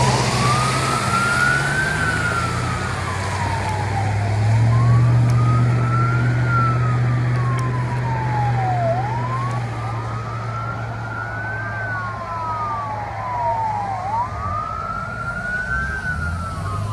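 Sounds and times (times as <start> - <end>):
fire engine siren wailing: 0.0 - 16.9.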